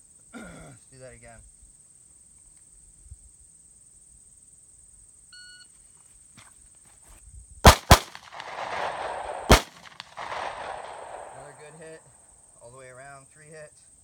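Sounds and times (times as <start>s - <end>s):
pistol shots: 7.7s - 12.0s.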